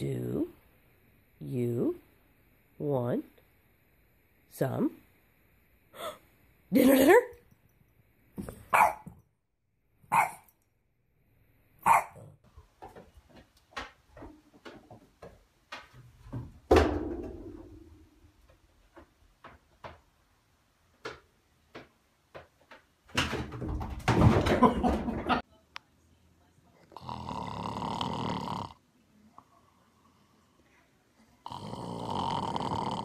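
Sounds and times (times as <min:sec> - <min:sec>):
dog barking: 0:08.7 - 0:09.1, 0:10.1 - 0:10.5, 0:11.8 - 0:12.3.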